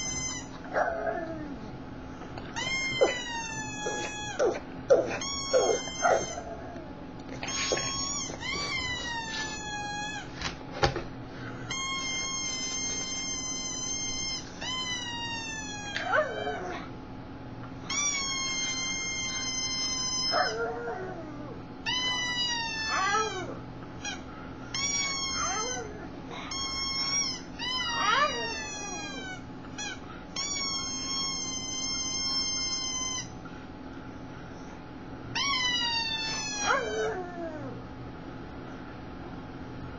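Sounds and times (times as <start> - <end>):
dog whining in high squeals: 0.0 - 1.5, 2.5 - 6.8, 7.4 - 10.4, 11.7 - 16.9, 17.8 - 33.4, 35.3 - 37.8
dog whimpering: 2.5 - 10.3, 11.8 - 16.9, 17.9 - 24.2, 24.8 - 33.3, 35.4 - 37.8.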